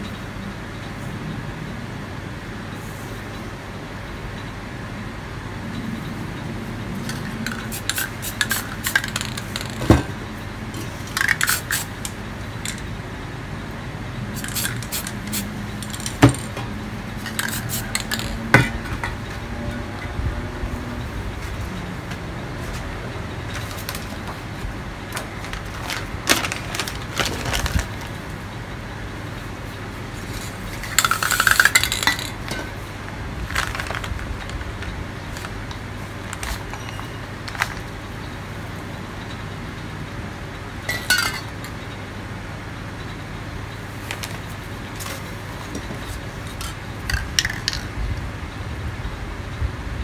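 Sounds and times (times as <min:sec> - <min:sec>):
metal spray cans clinking: 0:07.0 - 0:10.1, 0:10.8 - 0:12.9, 0:14.4 - 0:19.2, 0:23.5 - 0:24.4, 0:25.2 - 0:28.0, 0:30.3 - 0:32.8, 0:33.5 - 0:37.9, 0:40.9 - 0:41.6, 0:46.5 - 0:47.9
spray can hissing: 0:07.4 - 0:09.8, 0:11.1 - 0:12.8, 0:14.3 - 0:16.5, 0:17.2 - 0:18.4.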